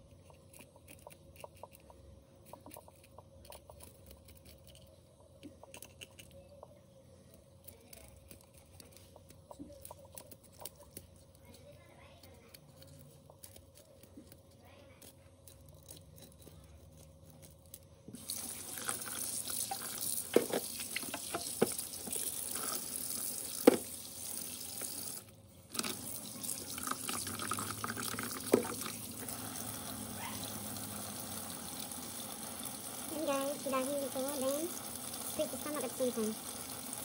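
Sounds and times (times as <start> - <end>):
tap running into steel sink: 18.8 - 22.3, 23.5 - 24.0.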